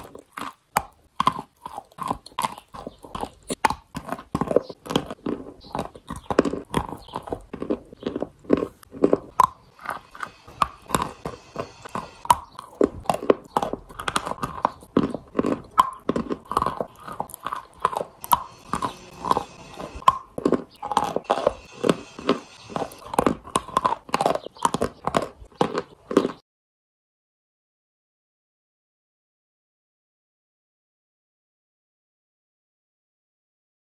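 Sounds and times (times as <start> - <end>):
wet sticky chewing: 0.0 - 26.4.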